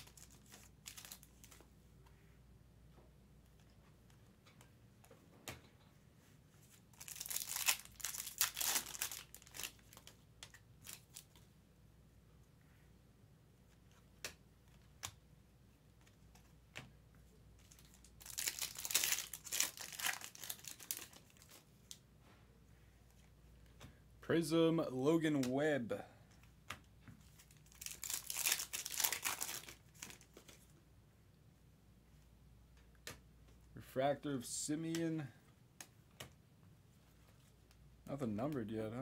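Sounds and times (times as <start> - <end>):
foil wrapper tearing and crinkling: 7.0 - 10.1, 17.7 - 21.6, 27.6 - 30.2.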